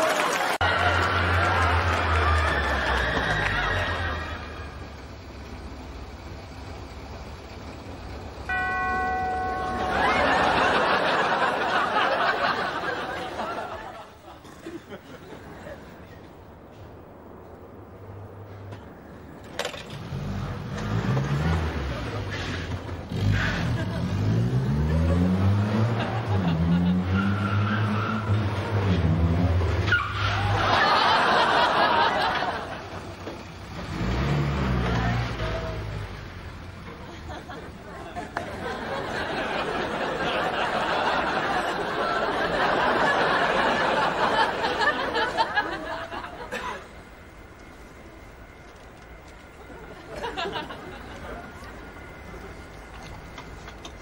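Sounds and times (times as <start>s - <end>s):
audience laughing loudly: 9.5s - 16.3s, 23.4s - 27.5s, 30.3s - 33.4s, 36.9s - 47.3s, 49.6s - 52.7s
car brake squeal: 29.8s - 30.4s.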